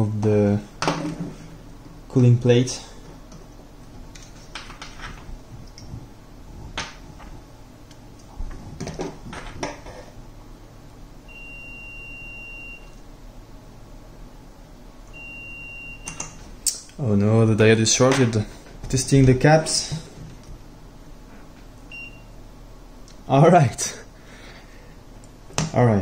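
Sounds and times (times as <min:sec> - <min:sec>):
multimeter continuity beep: 0:11.3 - 0:13.0, 0:15.1 - 0:16.2, 0:21.9 - 0:22.3.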